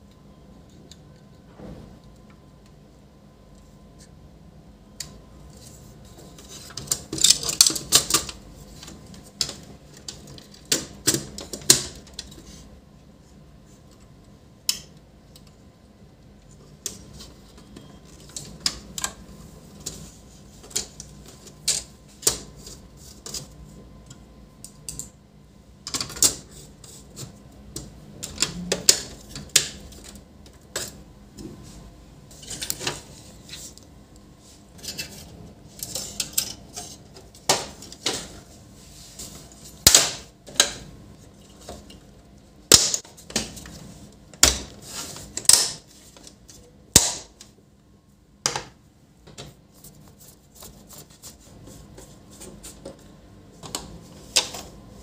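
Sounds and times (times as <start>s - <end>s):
printer parts clicking and knocking: 9.4s - 12.4s.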